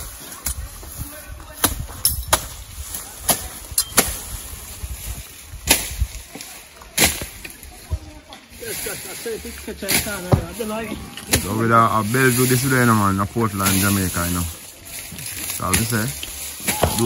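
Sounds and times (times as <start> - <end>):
hand tool chopping grass: 15.0 - 17.0.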